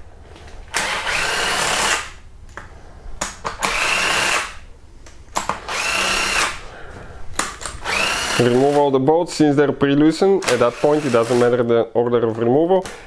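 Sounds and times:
power tool motor whine: 0:00.8 - 0:02.1, 0:03.7 - 0:04.6, 0:05.7 - 0:06.6, 0:07.8 - 0:08.8.

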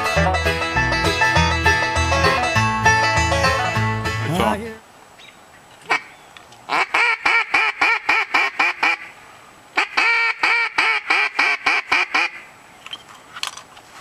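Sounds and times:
duck call quacks: 0:05.9 - 0:06.1, 0:06.7 - 0:09.1, 0:09.8 - 0:12.5.

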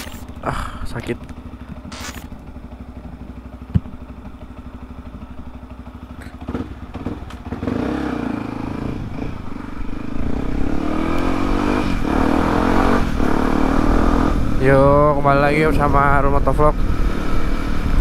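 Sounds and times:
engine knocks: 0:00.0 - 0:07.8
motorcycle engine idling: 0:00.0 - 0:11.3
motorcycle accelerating: 0:00.0 - 0:18.0.

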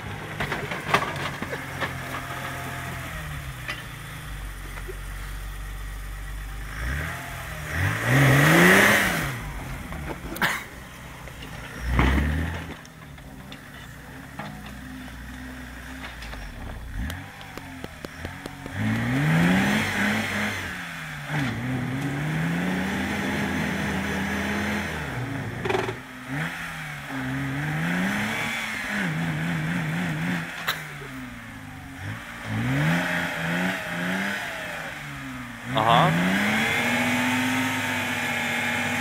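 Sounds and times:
tractor engine revving: 0:00.0 - 0:39.0.

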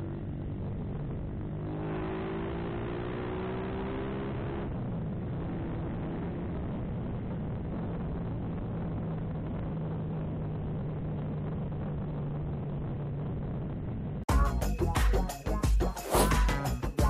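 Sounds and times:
motorcycle engine hum: 0:00.0 - 0:14.2
electronic music: 0:14.3 - 0:17.0.

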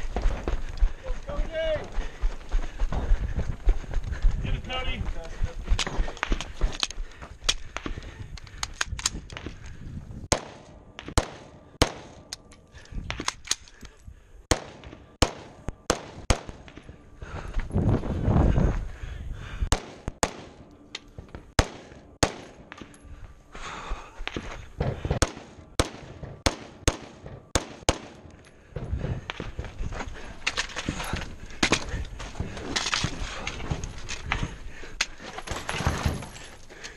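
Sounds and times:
rifle gunshots: 0:10.3 - 0:12.3, 0:14.5 - 0:16.7, 0:19.7 - 0:20.7, 0:21.6 - 0:22.8, 0:25.1 - 0:28.3.

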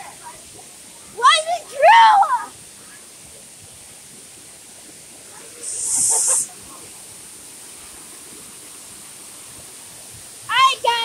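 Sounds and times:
waterfall rushing: 0:00.0 - 0:11.0
short sharp hiss: 0:05.5 - 0:06.6.

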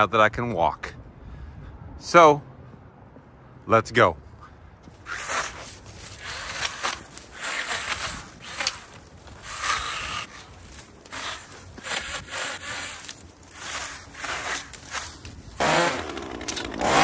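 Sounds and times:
brush scraping and rustling: 0:04.8 - 0:17.0.

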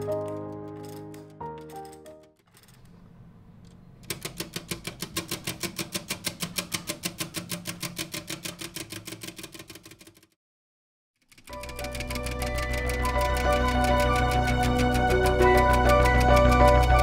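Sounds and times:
plastic escapement ticking fast: 0:04.0 - 0:10.4, 0:11.2 - 0:17.0.

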